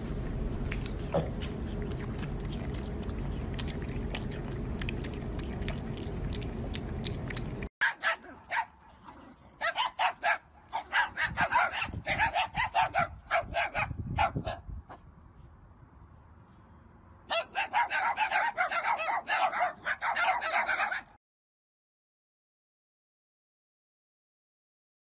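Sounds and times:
dogs barking: 0.7s - 14.6s, 17.3s - 21.2s.

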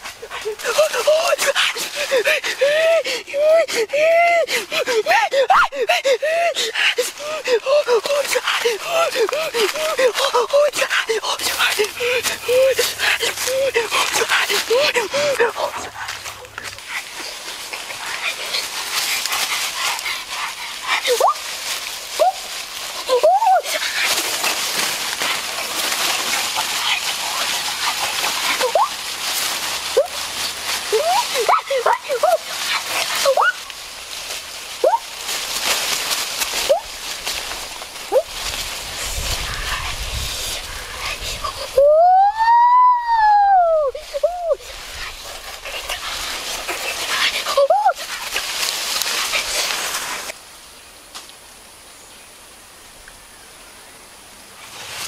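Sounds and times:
leaves rustling and crackling: 0.0s - 55.0s
boy yelping: 0.4s - 15.8s, 21.0s - 21.4s, 23.1s - 23.8s, 30.9s - 32.5s, 41.6s - 44.6s, 47.5s - 48.0s
boy's vocal call: 0.4s - 16.0s, 22.2s - 23.8s, 41.4s - 44.6s.

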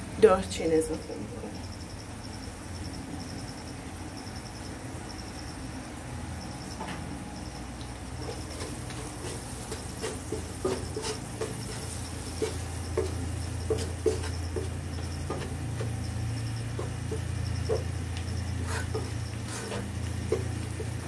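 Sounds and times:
steady low hum: 0.0s - 21.0s
wooden spatula scraping pan: 8.2s - 21.0s.

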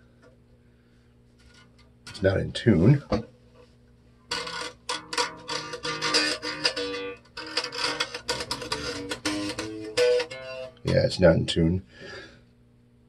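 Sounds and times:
electric bass plucked: 4.3s - 11.7s.

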